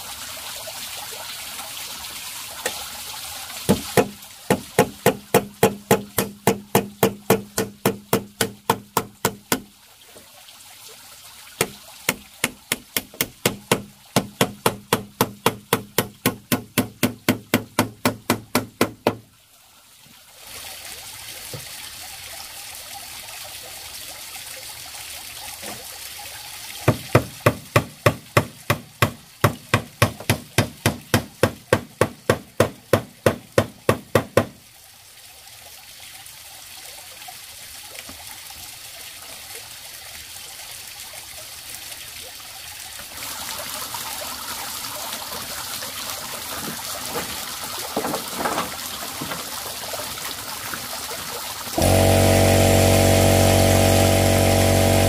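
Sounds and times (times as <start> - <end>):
hammering on wood: 3.7 - 9.7, 11.6 - 19.2, 26.9 - 34.6.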